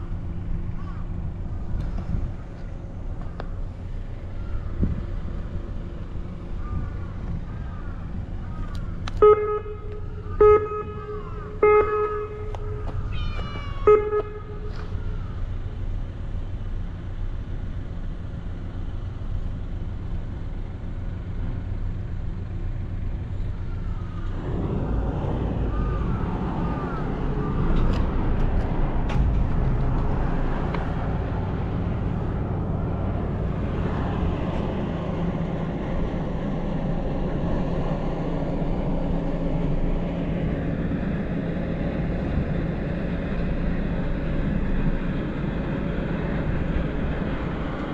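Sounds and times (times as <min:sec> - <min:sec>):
steady low rumble: 0:00.0 - 0:47.9
cat meowing: 0:12.8 - 0:15.2.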